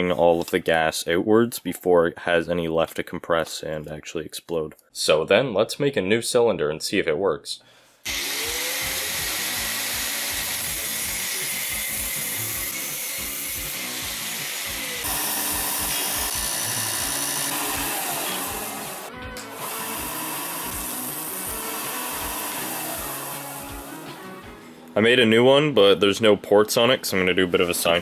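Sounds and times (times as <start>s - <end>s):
disc sander running: 8.1s - 24.3s
background music with steady beat: 8.4s - 28.0s.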